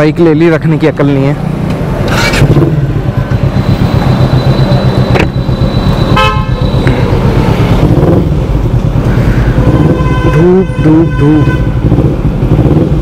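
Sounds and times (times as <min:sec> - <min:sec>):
motorcycle engine rumble: 0:00.0 - 0:13.0
road noise: 0:00.0 - 0:13.0
vehicle horn honk: 0:06.1 - 0:06.7, 0:09.2 - 0:11.8.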